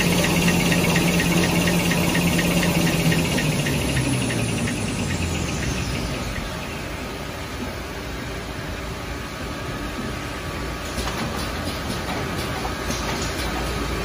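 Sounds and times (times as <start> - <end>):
machine mechanical rumble: 0.0 - 7.8.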